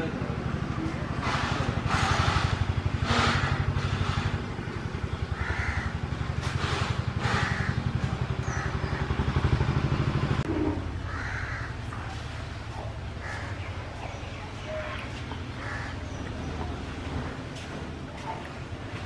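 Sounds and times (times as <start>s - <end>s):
engine idling: 0.0s - 19.0s
crows cawing: 3.1s - 4.3s, 5.2s - 6.3s, 7.2s - 9.1s, 11.0s - 12.1s, 13.1s - 13.7s, 15.5s - 16.3s.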